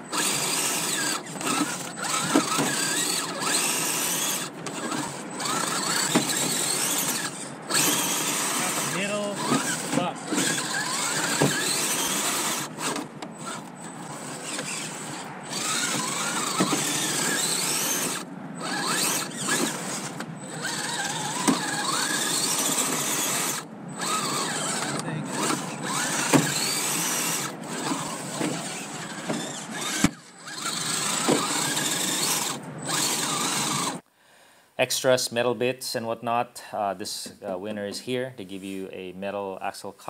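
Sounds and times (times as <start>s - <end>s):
electric motor whining: 0.0s - 34.0s.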